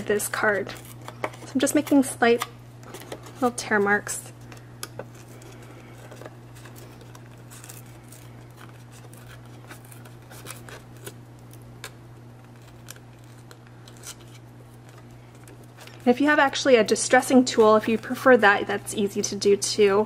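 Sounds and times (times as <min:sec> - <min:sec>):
paper tearing: 0:05.1 - 0:11.6, 0:12.4 - 0:16.0.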